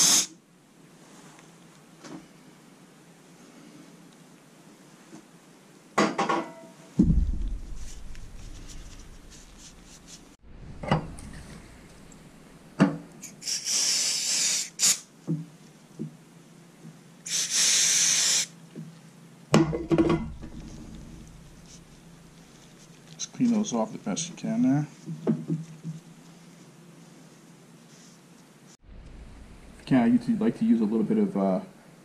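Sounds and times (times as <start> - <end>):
aerosol spray hissing: 0.0 - 0.4, 13.2 - 15.1, 17.3 - 18.5.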